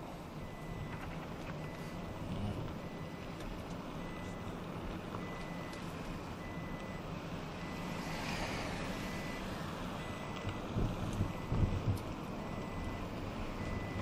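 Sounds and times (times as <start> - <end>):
car engine and tyre noise: 0.0 - 14.0
high electronic beep: 5.2 - 5.8, 9.0 - 10.6, 13.6 - 14.0
car passing by: 7.6 - 11.4.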